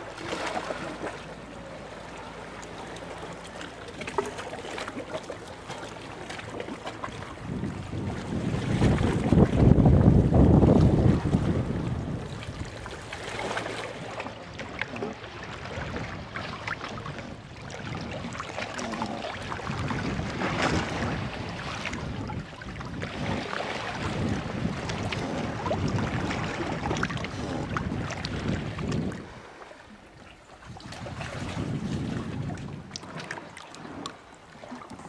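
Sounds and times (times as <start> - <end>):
water splashing against boat hull: 0.0 - 35.0
wind buffeting microphone: 6.9 - 13.1, 15.0 - 18.6, 19.4 - 29.6, 30.6 - 34.0.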